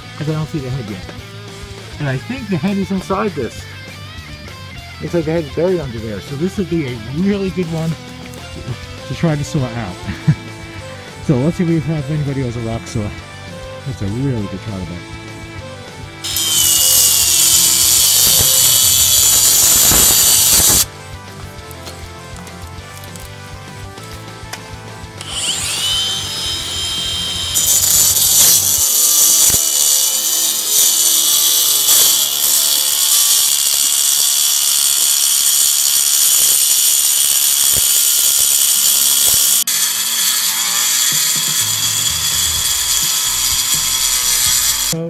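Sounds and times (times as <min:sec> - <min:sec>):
angle grinder cutting stone: 0:16.2 - 0:20.9, 0:25.2 - 0:45.0.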